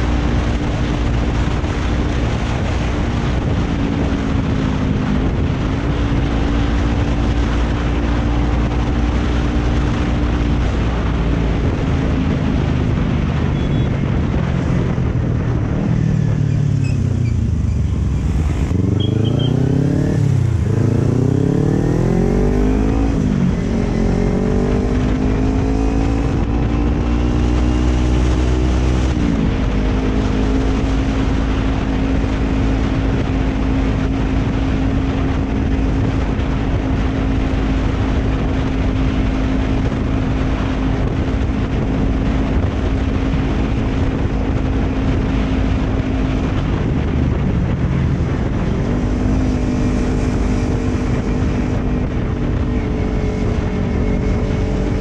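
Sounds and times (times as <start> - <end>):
motorcycle engine accelerating: 0.0 - 55.0
wind rush on microphone: 0.0 - 55.0.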